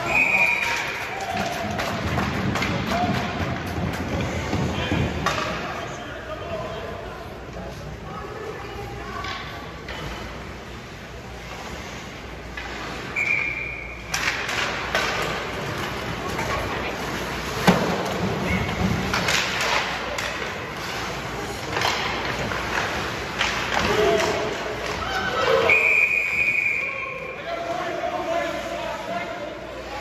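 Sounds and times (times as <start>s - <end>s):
short whistle: 0.0s - 0.8s, 13.2s - 14.0s, 25.7s - 27.0s
hockey sticks and puck clacking: 0.0s - 6.3s, 12.3s - 25.8s.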